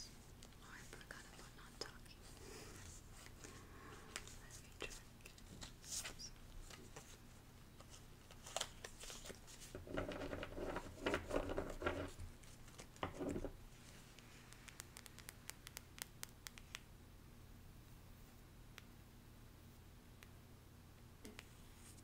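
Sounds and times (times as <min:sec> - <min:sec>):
paper cards rustling: 0:04.2 - 0:07.2, 0:07.8 - 0:15.3.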